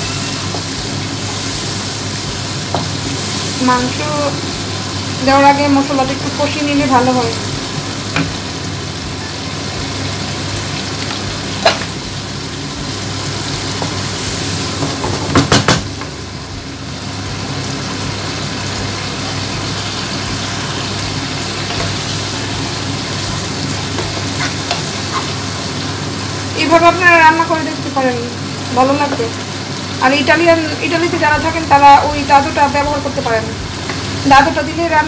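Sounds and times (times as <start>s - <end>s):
spices sizzling in oil: 0.0s - 35.0s
wooden spatula knocking pan: 14.8s - 15.9s.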